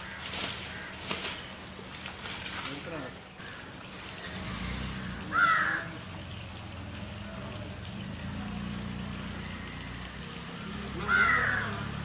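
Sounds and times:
crow cawing: 0:00.0 - 0:01.5, 0:03.4 - 0:03.8, 0:05.0 - 0:06.0, 0:11.0 - 0:12.0.

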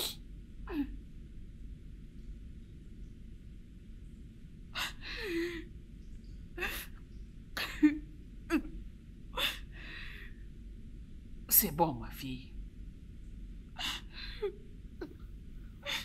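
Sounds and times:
woman sobbing: 0:07.6 - 0:08.8, 0:13.8 - 0:15.2.

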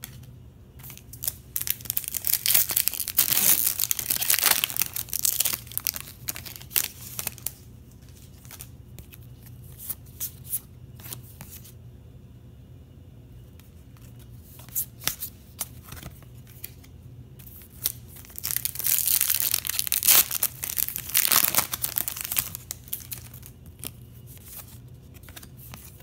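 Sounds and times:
foil pack tearing and crinkling: 0:01.2 - 0:07.5, 0:17.8 - 0:23.5.

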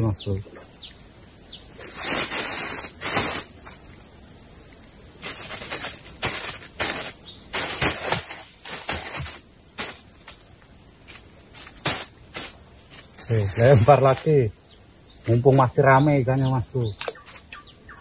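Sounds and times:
insects droning: 0:00.0 - 0:18.0
handling clicks and rustles: 0:05.2 - 0:10.4.

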